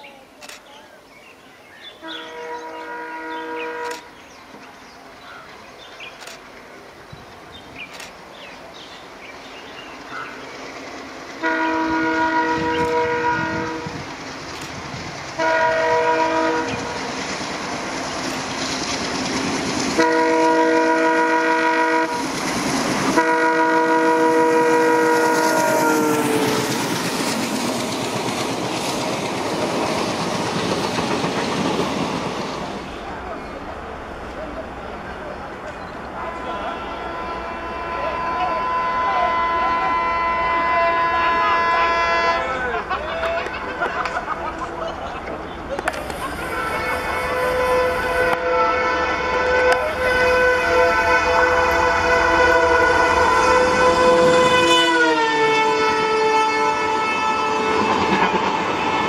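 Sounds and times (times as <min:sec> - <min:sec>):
diesel locomotive approaching: 0:01.3 - 0:59.0
train coaches rushing and clacking: 0:01.8 - 0:59.0
locomotive air horn: 0:02.0 - 0:04.1, 0:11.4 - 0:14.0, 0:15.4 - 0:17.0, 0:20.0 - 0:22.3, 0:23.1 - 0:26.9, 0:36.2 - 0:42.6, 0:46.4 - 0:59.0.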